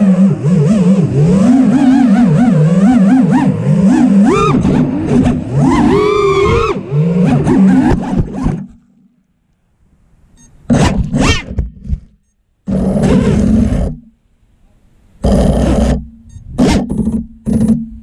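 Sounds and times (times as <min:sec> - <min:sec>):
quadcopter motors whining: 0:00.0 - 0:08.4.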